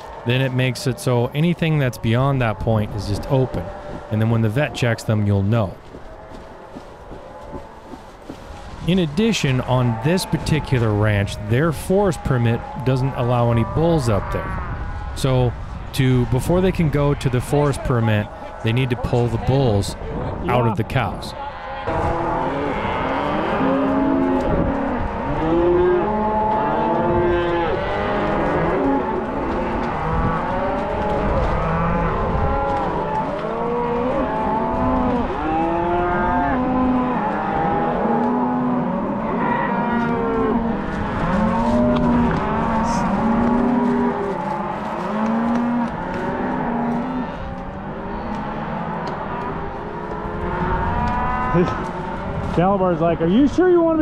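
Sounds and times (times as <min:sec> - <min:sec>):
cattle mooing and bawling: 0:00.0 - 0:07.9, 0:08.9 - 0:15.5, 0:20.5 - 0:52.4.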